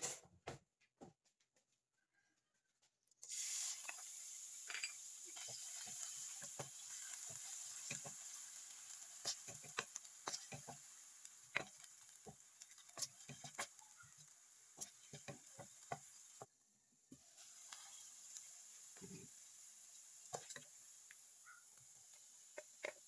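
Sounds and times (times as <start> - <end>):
wooden spatula scraping frying pan: 5.3 - 13.8, 14.7 - 16.4, 20.3 - 20.6
faint steady hiss: 17.1 - 23.0.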